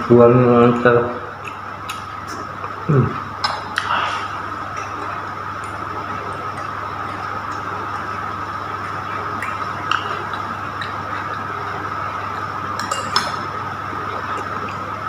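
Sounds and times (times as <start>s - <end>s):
steady background hum: 0.0s - 15.0s
metal spoon clinking glass bowl: 12.8s - 13.4s.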